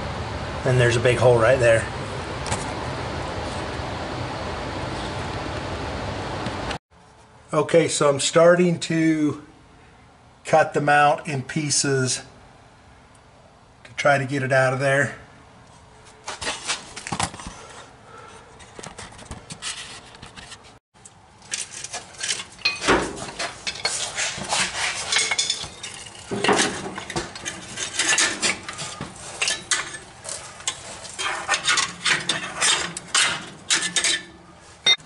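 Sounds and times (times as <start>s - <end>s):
metallic clanking and rattling: 21.4s - 35.0s.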